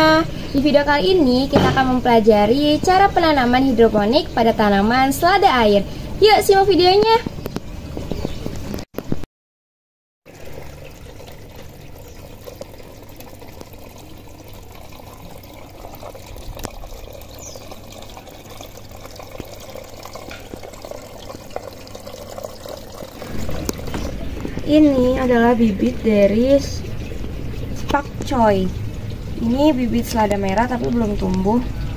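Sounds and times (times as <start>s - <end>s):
water trickling: 10.3s - 31.9s.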